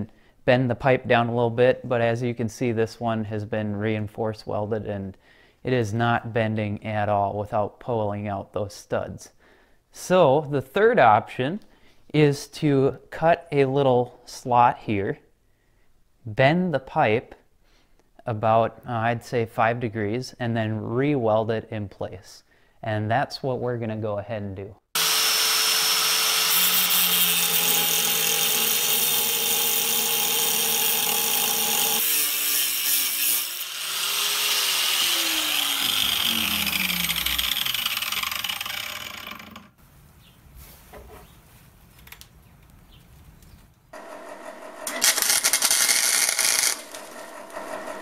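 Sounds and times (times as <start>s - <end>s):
angle grinder cutting metal: 25.0s - 39.8s, 44.0s - 48.0s
grinder disc spinning down: 33.3s - 39.8s, 44.0s - 48.0s
welding crackle: 44.9s - 47.6s.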